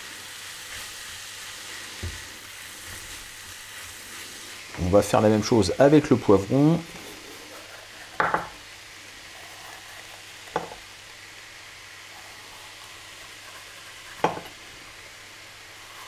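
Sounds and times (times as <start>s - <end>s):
vegetables sizzling in oil: 0.0s - 16.0s
knife knocking on cutting board: 8.2s - 8.6s, 14.2s - 14.5s.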